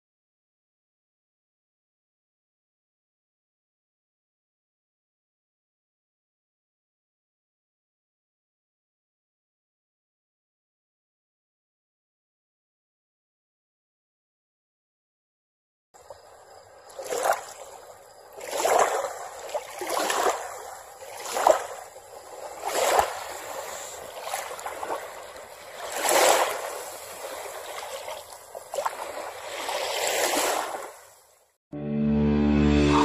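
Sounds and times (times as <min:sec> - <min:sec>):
waves washing in: 0:16.0 - 0:31.3.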